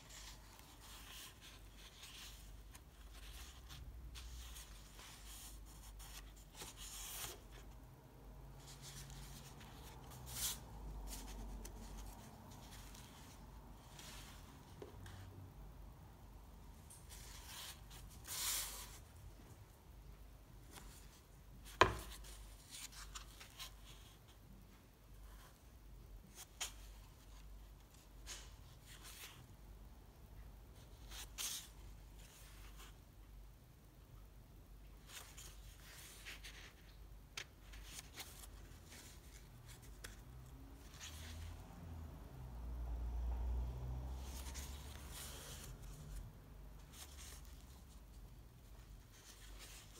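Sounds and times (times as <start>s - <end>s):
sketchbook pages turning: 0.0s - 7.8s, 8.6s - 15.2s, 35.1s - 41.6s, 44.2s - 46.2s
light paper rustling: 0.0s - 15.4s, 16.8s - 19.7s, 20.6s - 24.6s, 34.9s - 42.0s, 44.2s - 49.9s.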